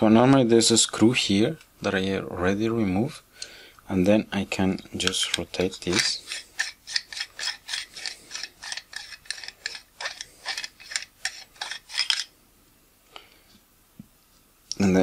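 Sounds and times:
lens barrel rubbing and scraping: 4.8 - 12.3.

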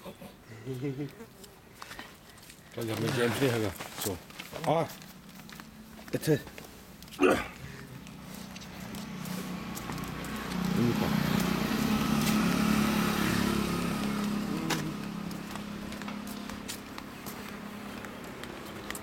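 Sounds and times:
vehicle engine passing: 7.6 - 19.0.

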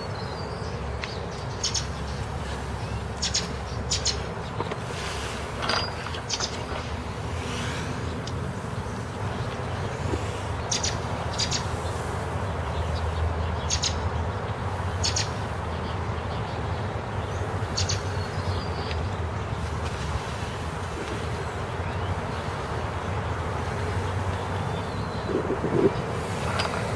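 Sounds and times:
bird chirps: 0.0 - 4.7, 8.0 - 19.6
low traffic rumble: 0.0 - 26.9.

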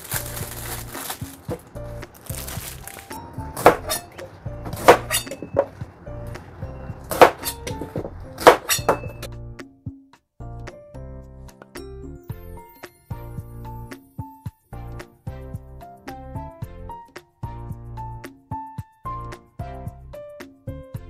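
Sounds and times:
background music: 0.0 - 21.0
cleaver chopping on cutting board: 4.7 - 5.8, 7.1 - 9.1.

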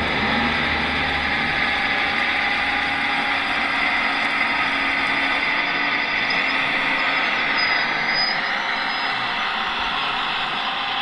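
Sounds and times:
model excavator mechanical whir: 2.2 - 11.0.

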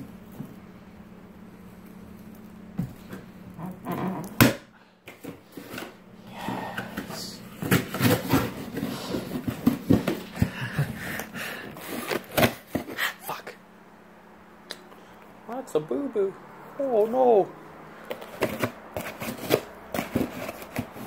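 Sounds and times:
tape and cardboard tearing: 18.2 - 21.0.

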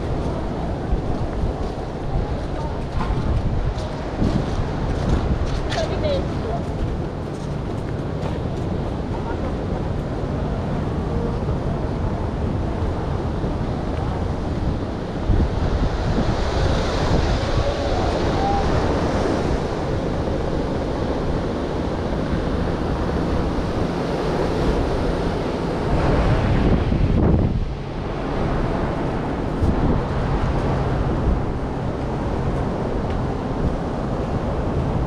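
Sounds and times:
wind buffeting microphone: 0.0 - 35.0
surf breaking on beach: 12.2 - 35.0.

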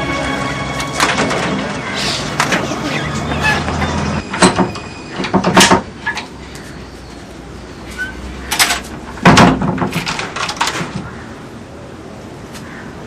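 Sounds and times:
door knocking and rattling: 4.4 - 5.9, 9.2 - 11.0.

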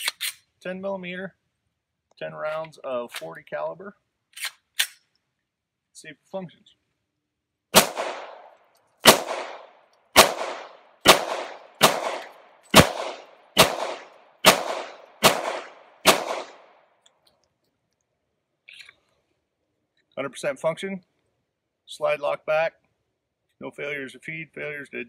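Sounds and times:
pistol shots with echo: 7.7 - 16.8.

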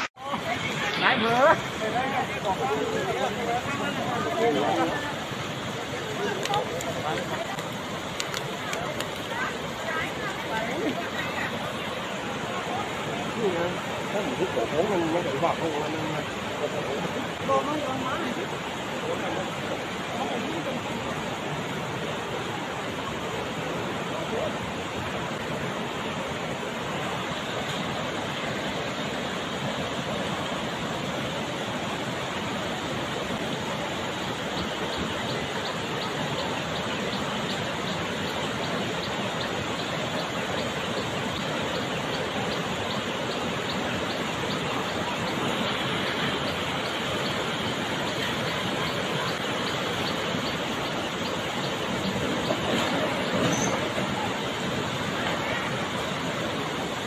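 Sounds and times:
floodwater rushing across road: 0.0 - 57.0.

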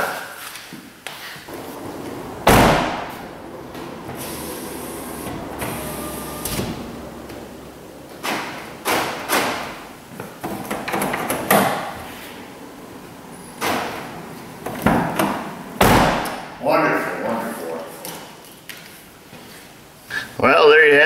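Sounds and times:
low hum: 1.5 - 10.2
car door slamming: 1.5 - 11.9, 13.6 - 16.6.

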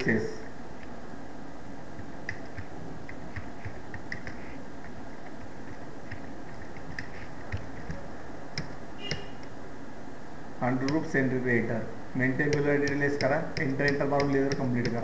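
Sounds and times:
steady background hum: 0.0 - 15.0
keyboard keys clicking: 2.0 - 9.6, 12.4 - 15.0.

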